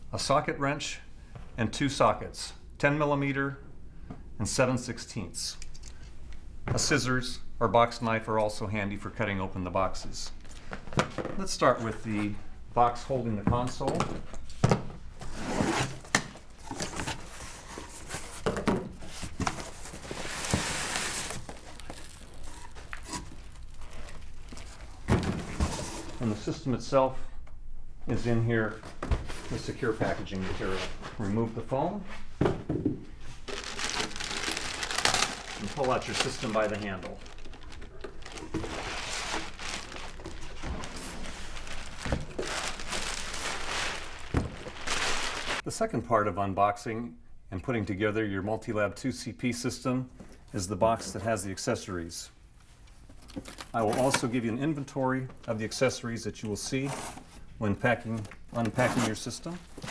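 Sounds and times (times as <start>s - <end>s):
plastic bag crinkling: 19.7s - 25.1s, 33.3s - 45.6s.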